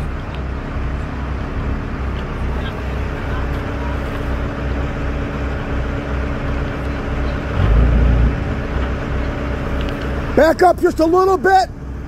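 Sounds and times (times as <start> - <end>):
heavy engine droning: 0.0 - 12.0.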